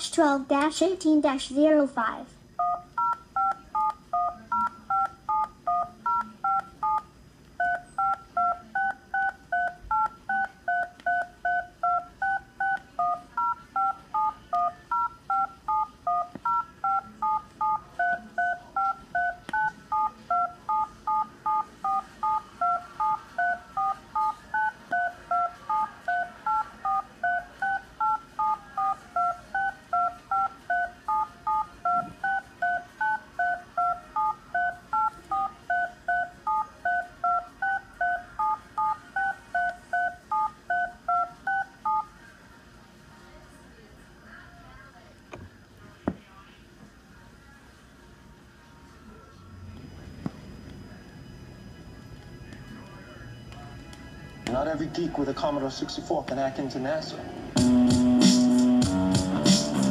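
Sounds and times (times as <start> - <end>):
two-tone telephone beeps: 2.6 - 42.1.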